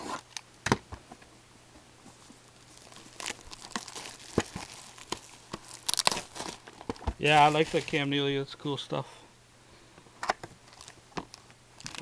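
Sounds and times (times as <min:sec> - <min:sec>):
foil packaging crinkling: 0:02.1 - 0:08.1, 0:10.6 - 0:12.0.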